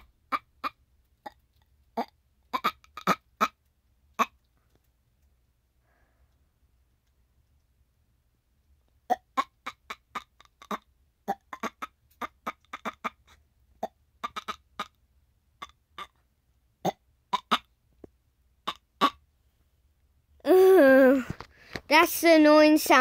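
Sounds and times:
person making squeaky chirps: 0.0 - 1.4, 2.0 - 3.6, 9.1 - 15.0, 15.6 - 16.2, 16.9 - 17.7.

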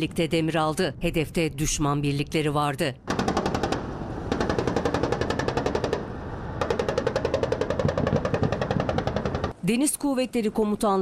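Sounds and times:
automatic gunfire: 3.1 - 6.0.

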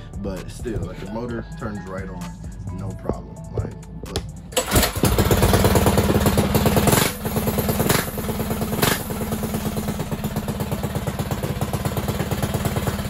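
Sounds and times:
minibike engine running: 4.6 - 13.0.

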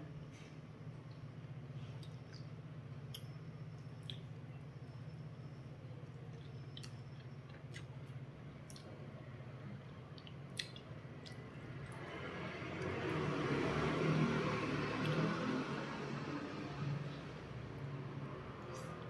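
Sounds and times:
steady low hum: 0.0 - 19.0
soft chewing and mouth smacks: 1.0 - 4.6, 6.0 - 12.2.

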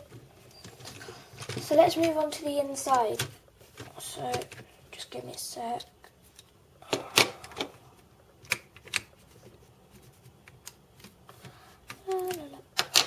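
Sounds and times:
plastic toy bricks clicking: 11.8 - 13.0.

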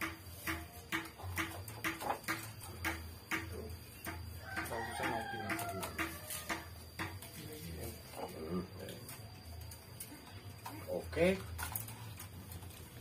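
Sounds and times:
rooster crowing: 4.3 - 7.0.

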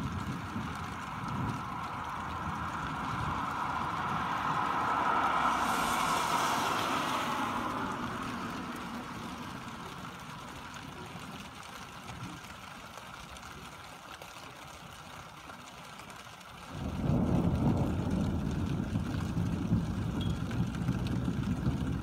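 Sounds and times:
car tyres hissing on wet road: 0.0 - 22.0.

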